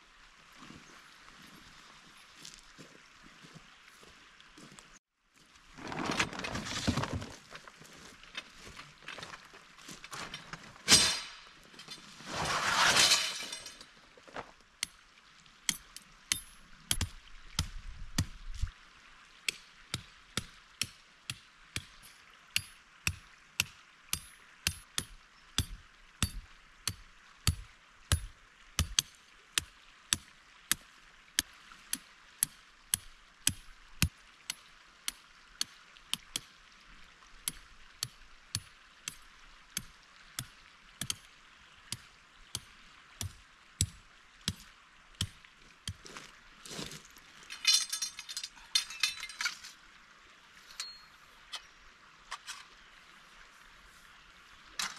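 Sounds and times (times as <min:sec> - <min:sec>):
hammer tapping metal stakes: 0:15.7 - 0:18.4, 0:19.5 - 0:30.8, 0:39.8 - 0:41.3.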